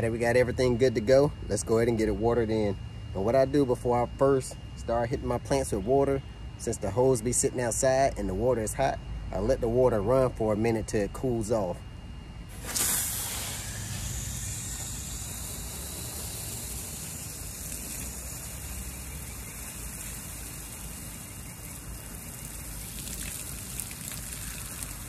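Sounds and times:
hose spraying water on ground: 12.5s - 25.0s.

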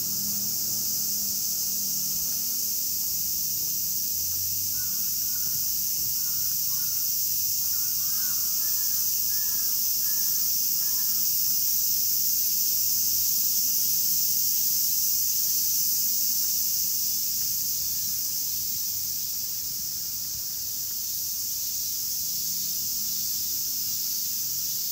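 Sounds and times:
high-pitched insect drone: 0.0s - 24.9s
crow cawing: 4.7s - 7.0s, 7.6s - 11.2s.

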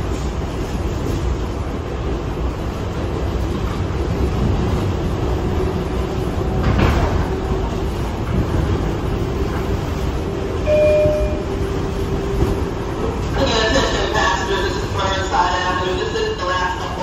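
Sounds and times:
subway wheels rumbling on rail: 0.0s - 17.0s
brief higher tone: 10.6s - 11.5s.

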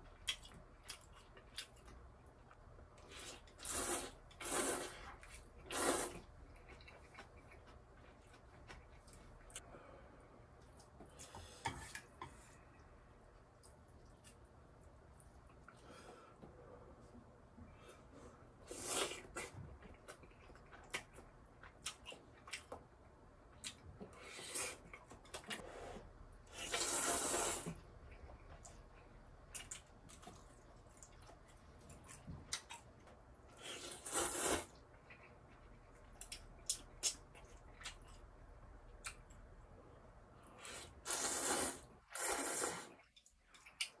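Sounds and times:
person slurping noodles: 3.2s - 6.3s, 25.8s - 27.8s, 33.6s - 34.7s, 40.7s - 43.0s.

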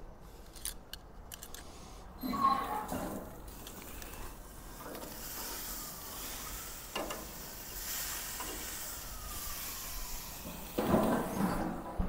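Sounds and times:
steaks sizzling on grill: 5.2s - 10.8s.

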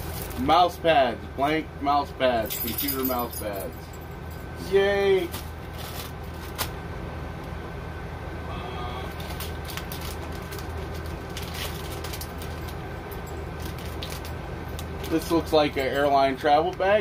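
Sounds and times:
steady low hum: 0.0s - 17.0s
plastic wrapping rustling: 5.2s - 6.7s, 9.2s - 12.8s, 13.5s - 15.3s.

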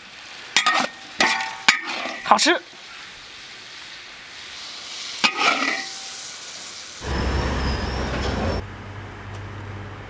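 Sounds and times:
hot food hissing: 0.0s - 8.0s.

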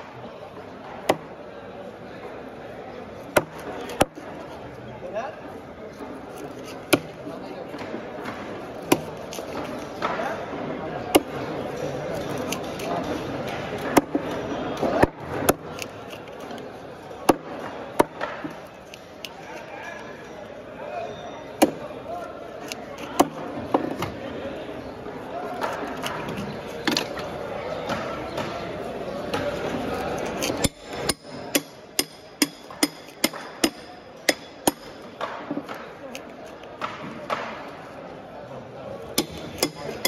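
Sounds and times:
knife chopping on wooden block: 8.2s - 10.2s, 30.4s - 35.8s, 39.2s - 40.0s.

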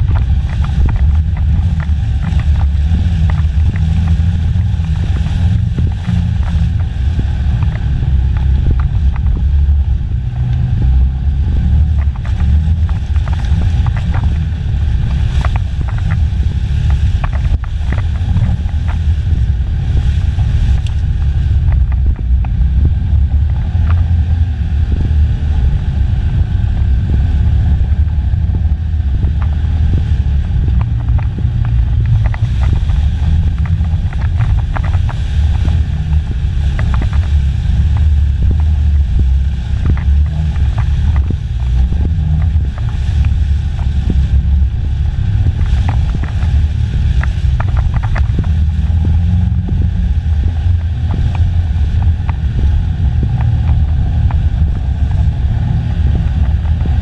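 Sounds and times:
knocks and rattles: 0.0s - 9.9s, 11.6s - 24.2s, 28.4s - 44.6s
off-road vehicle engine running: 0.0s - 57.0s.

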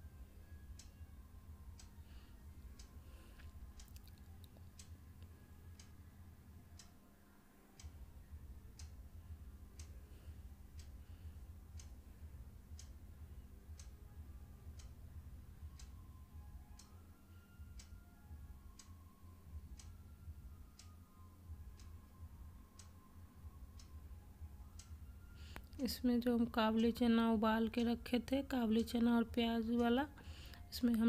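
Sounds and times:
faint clock ticking: 0.0s - 31.0s
low steady hum: 0.0s - 31.0s.

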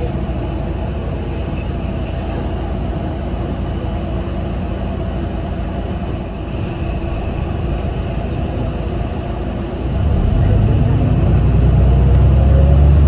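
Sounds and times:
bus diesel engine idling: 0.0s - 13.0s.

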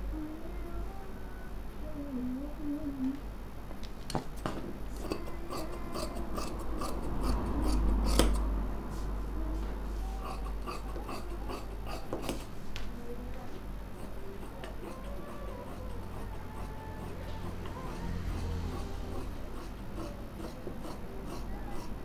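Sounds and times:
scissors snipping cloth: 5.0s - 8.4s.

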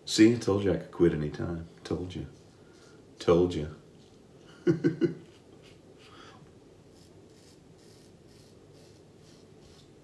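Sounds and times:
razor scraping stubble: 6.9s - 9.9s.

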